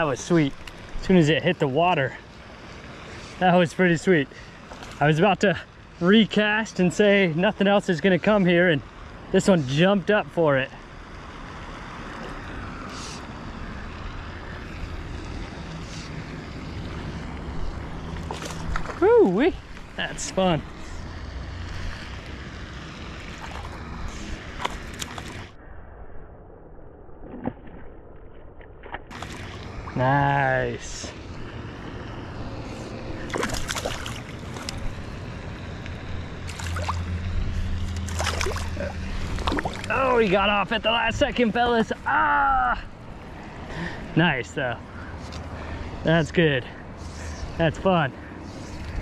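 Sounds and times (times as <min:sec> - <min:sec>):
fish splashing and thrashing: 0:04.4 - 0:05.1, 0:15.4 - 0:20.0, 0:21.5 - 0:25.6, 0:27.2 - 0:30.0, 0:32.6 - 0:35.3, 0:36.2 - 0:40.4.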